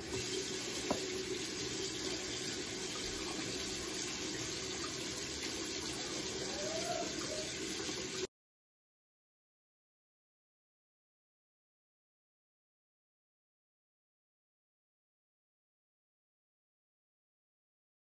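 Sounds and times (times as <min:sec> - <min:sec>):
tap water pouring into basin: 0:00.0 - 0:08.3.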